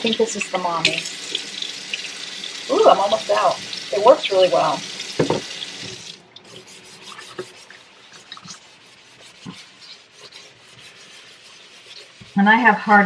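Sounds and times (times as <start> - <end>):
kitchen faucet running: 0.0 - 7.4
scrubber rubbing steel sink: 6.4 - 13.0.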